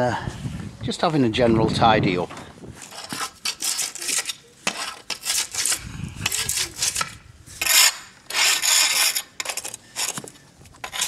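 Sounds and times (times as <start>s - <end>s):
weed scraper rasping on concrete: 2.8s - 11.0s.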